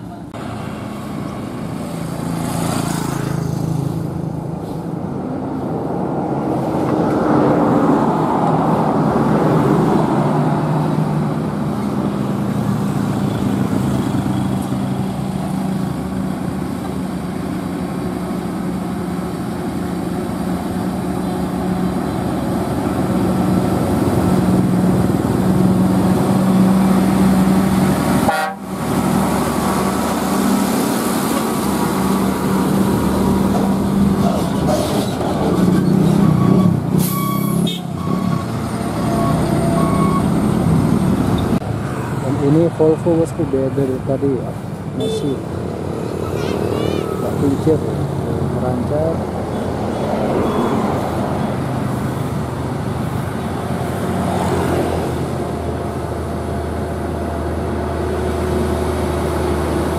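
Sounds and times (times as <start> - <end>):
heavy trucks driving past: 0.0 - 59.9
truck horns: 28.1 - 29.0, 35.8 - 40.4, 45.0 - 45.5.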